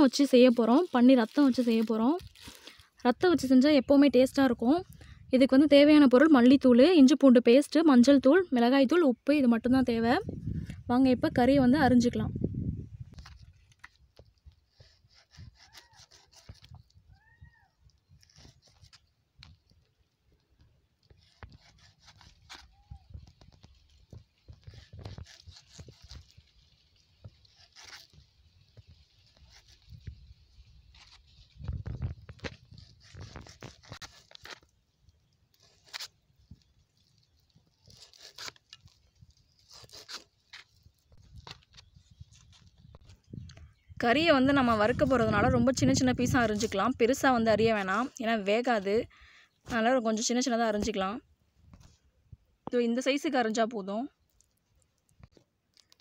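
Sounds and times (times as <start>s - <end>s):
blade slicing raw meat: 14.9s - 16.8s
faint cat meows: 17.1s - 17.8s.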